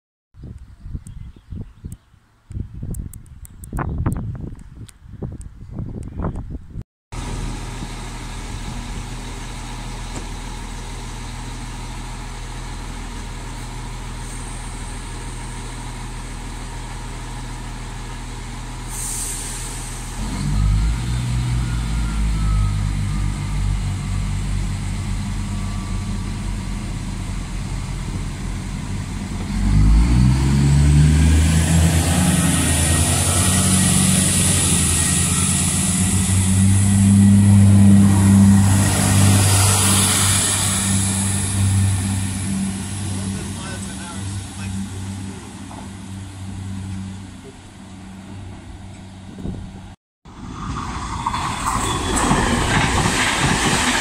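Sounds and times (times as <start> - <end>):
train engines revving with hiss: 7.2 - 48.2
diesel railcar engines running: 7.2 - 54.0.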